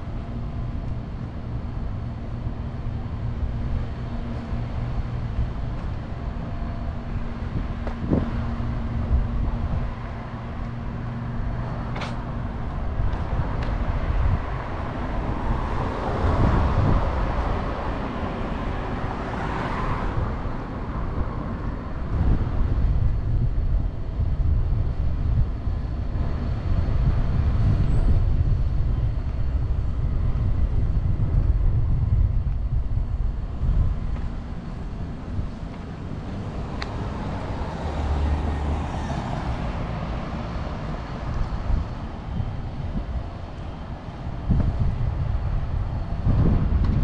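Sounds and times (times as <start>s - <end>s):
road traffic: 0.0s - 47.0s
vehicle passing: 33.4s - 43.2s.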